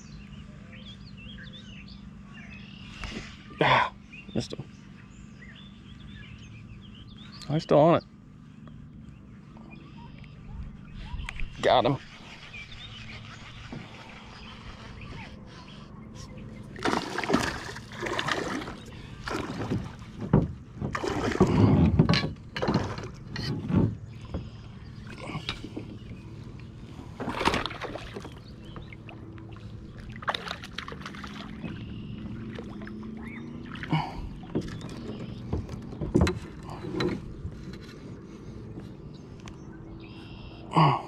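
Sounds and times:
water splashing: 0:16.6 - 0:23.4, 0:26.9 - 0:36.0
gear bumping plastic hull: 0:16.6 - 0:39.1.

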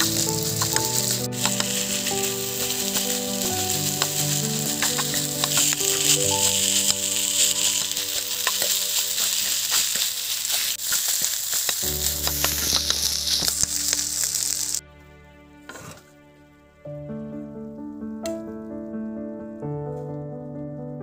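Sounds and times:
rice sizzling in a wok: 0:00.0 - 0:14.8.

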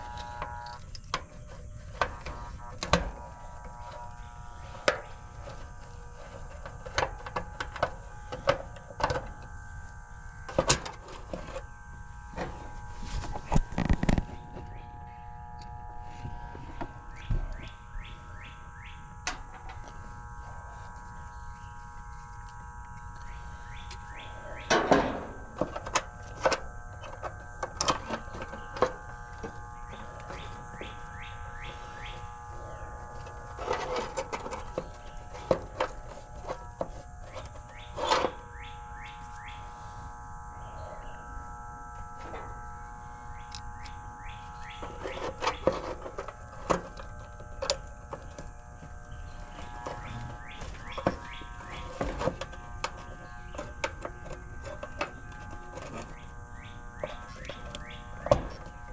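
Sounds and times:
birds chirping: 0:11.5 - 0:24.8, 0:28.1 - 0:41.6, 0:42.3 - 0:58.9.

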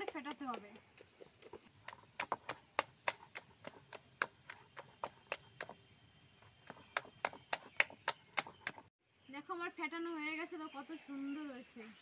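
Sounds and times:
hand slapping batter in bowl: 0:01.8 - 0:08.9.

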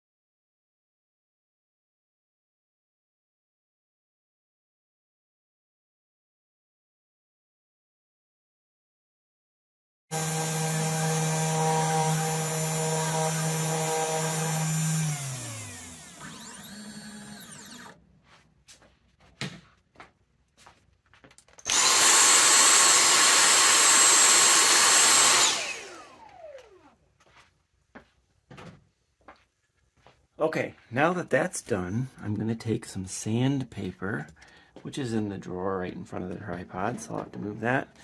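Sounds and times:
router spindle motor whine: 0:10.1 - 0:18.0, 0:21.6 - 0:27.0.

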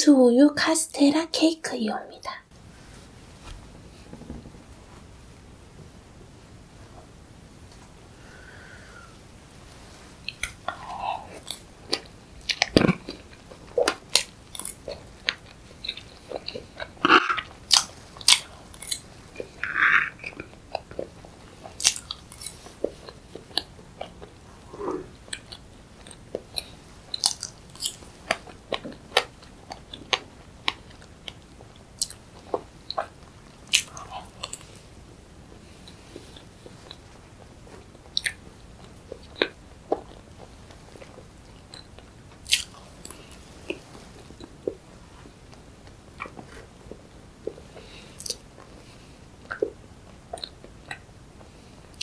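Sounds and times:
sharp mouth clicks: 0:10.3 - 0:13.0, 0:48.2 - 0:48.4
chewing and wet lip smacks: 0:49.4 - 0:51.1.

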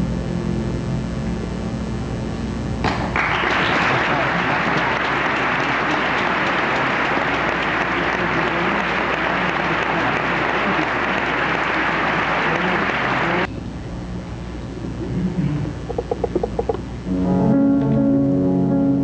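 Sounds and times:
audience applauding: 0:03.0 - 0:13.5.

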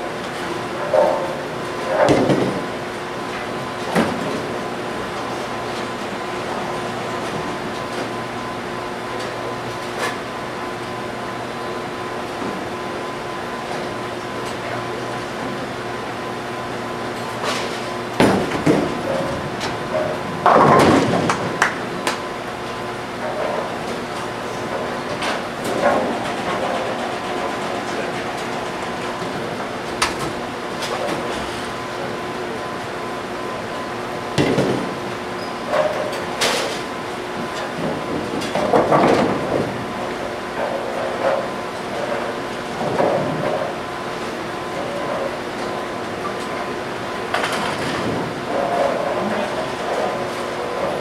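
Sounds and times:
bowling alley machinery hum: 0:00.0 - 0:51.0
bowling ball thuds: 0:18.2 - 0:21.8
bowling pins crashing: 0:18.2 - 0:22.0.

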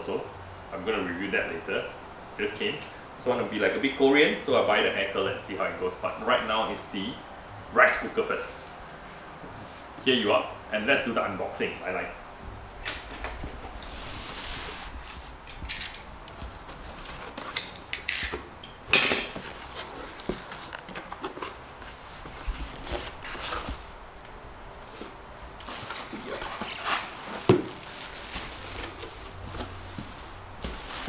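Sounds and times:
cardboard and packing rustling: 0:13.0 - 0:17.9, 0:18.9 - 0:24.0, 0:24.8 - 0:31.0.

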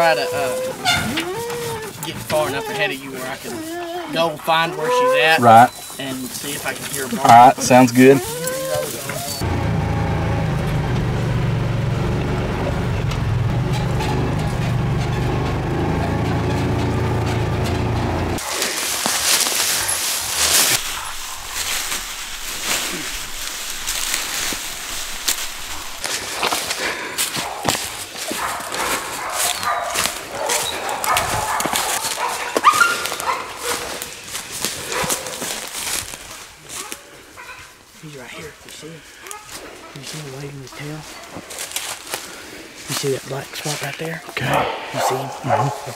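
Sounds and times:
dogs barking: 0:00.0 - 0:06.0, 0:06.6 - 0:09.5, 0:25.6 - 0:34.2, 0:34.8 - 0:37.8, 0:39.2 - 0:42.0, 0:44.3 - 0:45.9
footsteps crunching in dry brush: 0:00.0 - 0:09.4, 0:18.4 - 0:45.9
utility vehicle engine driving: 0:09.0 - 0:18.5
twigs snapping: 0:18.4 - 0:37.0.

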